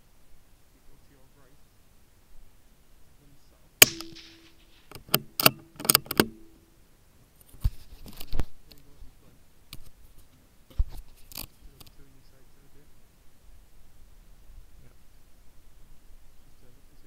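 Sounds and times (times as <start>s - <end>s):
rifle handling clicks and knocks: 3.8s - 6.6s
rifle shot crack: 3.8s - 6.6s.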